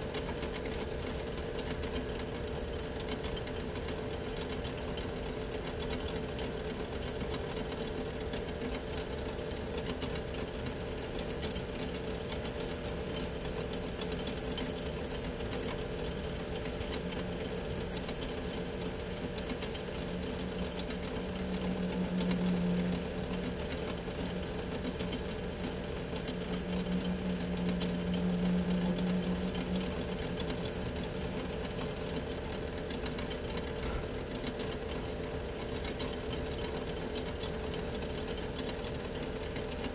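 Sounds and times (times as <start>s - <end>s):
metal lathe running: 0.0s - 39.9s
low hum: 20.3s - 31.8s.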